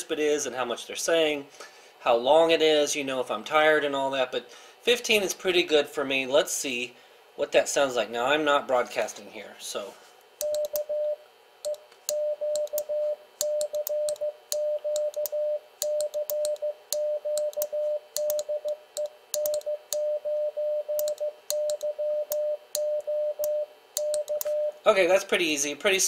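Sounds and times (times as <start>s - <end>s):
morse code beeps: 10.4s - 24.8s.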